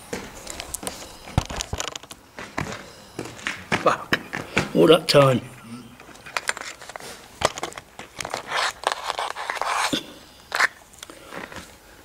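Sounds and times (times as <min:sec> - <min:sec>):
close rustling and scraping: 0:06.0 - 0:11.8.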